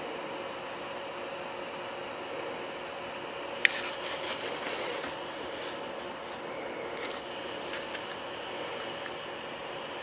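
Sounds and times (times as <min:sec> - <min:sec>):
cooling fan running: 0:00.0 - 0:10.0.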